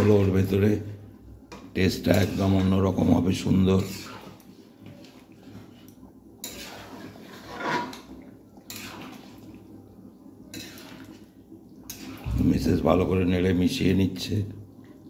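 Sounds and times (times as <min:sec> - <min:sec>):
wooden spatula scraping metal pan: 0:01.9 - 0:02.9, 0:03.7 - 0:04.4, 0:06.4 - 0:08.1, 0:08.7 - 0:09.4, 0:10.5 - 0:11.2.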